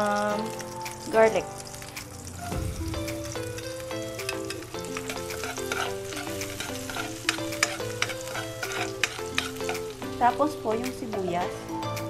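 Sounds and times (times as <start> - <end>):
background music melody: 0.0 - 12.0
garlic sizzling in hot oil: 0.0 - 12.0
metal spoon clicking against pan: 4.2 - 9.8.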